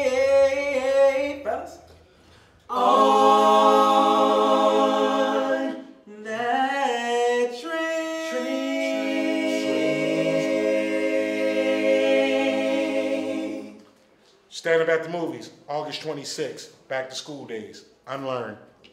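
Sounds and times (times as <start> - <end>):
male vocal group singing: 0.0 - 1.8, 2.7 - 13.9.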